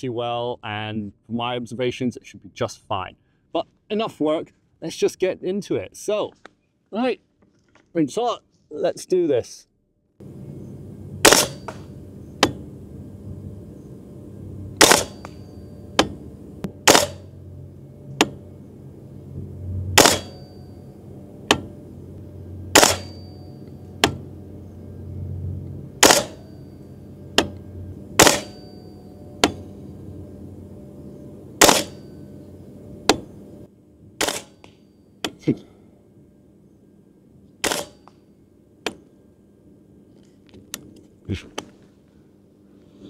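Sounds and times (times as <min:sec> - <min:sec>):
airsoft rifle firing single shots: 0:11.2 - 0:11.7, 0:14.8 - 0:15.3, 0:16.8 - 0:17.2, 0:20.0 - 0:20.4, 0:22.7 - 0:23.1, 0:26.0 - 0:26.4, 0:28.2 - 0:28.6, 0:31.6 - 0:32.0, 0:34.2 - 0:34.6, 0:37.6 - 0:38.0.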